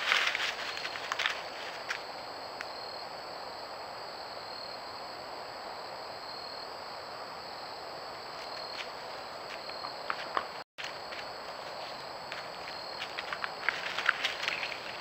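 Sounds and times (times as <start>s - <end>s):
footsteps crunching leaf litter: 0.0s - 2.1s, 10.8s - 15.0s
night insects chorus: 0.0s - 15.0s.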